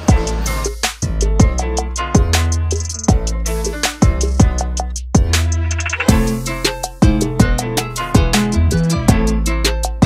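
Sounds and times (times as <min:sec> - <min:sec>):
music with heavy kick drum and bass: 0:00.0 - 0:10.0
sharp percussion hits: 0:04.0 - 0:07.4.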